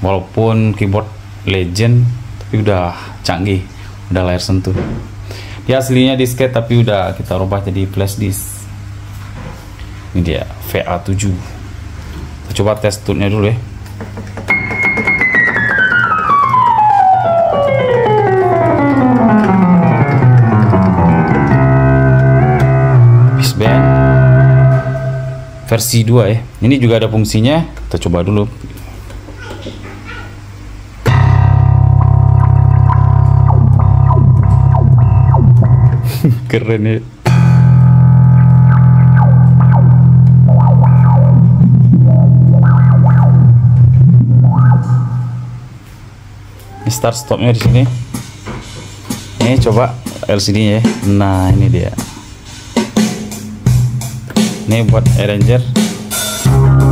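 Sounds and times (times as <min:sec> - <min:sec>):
keyboard note gliding down: 0:14.5 - 0:25.8, 0:31.1 - 0:36.2, 0:37.3 - 0:45.8, 0:56.5 - 0:56.9
steady low keyboard note: 0:15.8 - 0:25.9, 0:31.1 - 0:36.3, 0:37.3 - 0:45.8, 0:56.4 - 0:56.9.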